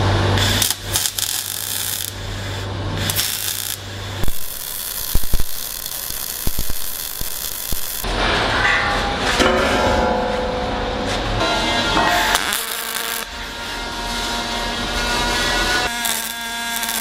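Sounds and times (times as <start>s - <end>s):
welding arc hissing and crackling: 0.0s - 8.1s, 11.7s - 17.0s.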